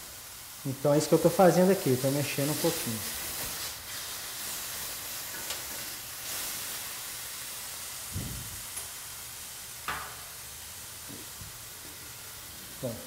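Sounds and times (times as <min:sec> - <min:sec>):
food sizzling in a frying pan: 0:00.0 - 0:13.0.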